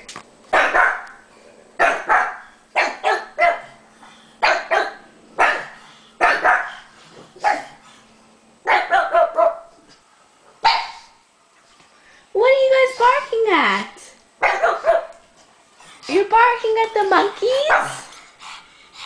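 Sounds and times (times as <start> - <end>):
dogs barking: 0.5 - 1.2, 1.8 - 3.8, 4.4 - 7.8, 8.6 - 9.7, 10.6 - 11.2, 14.4 - 15.2, 17.4 - 18.1.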